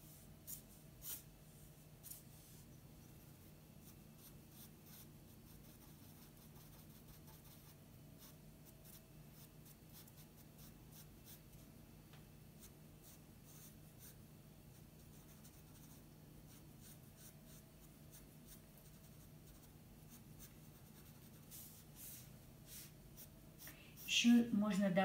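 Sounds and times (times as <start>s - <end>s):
steady low hum: 0.0s - 25.0s
pencil scratching on paper: 3.8s - 11.5s, 12.6s - 14.2s, 14.8s - 23.3s.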